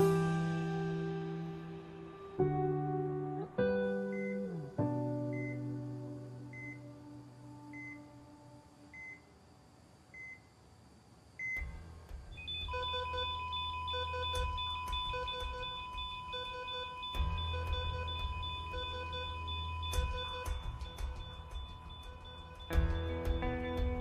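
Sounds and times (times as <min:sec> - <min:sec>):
continuous flatline tone: 0:01.0 - 0:24.0
heartbeat monitor beeps: 0:04.1 - 0:04.5, 0:05.3 - 0:05.7, 0:06.5 - 0:06.9, 0:07.7 - 0:08.1, 0:08.9 - 0:09.3, 0:10.1 - 0:10.5, 0:11.4 - 0:24.0
triple-beep alarm: 0:12.3 - 0:24.0.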